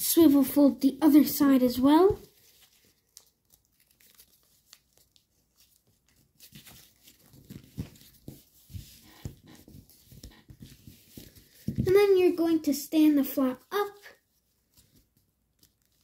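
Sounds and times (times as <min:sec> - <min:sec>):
foil paper crinkling: 0:02.3 - 0:11.6.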